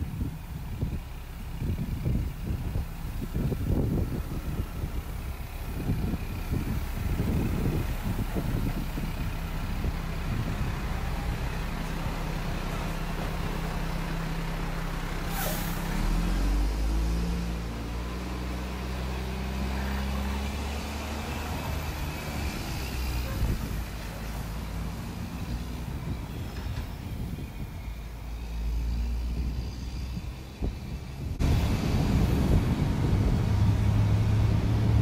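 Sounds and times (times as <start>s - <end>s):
diesel trucks idling: 0.0s - 35.0s
truck engine revving: 0.2s - 35.0s
air brake hiss: 15.3s - 16.0s.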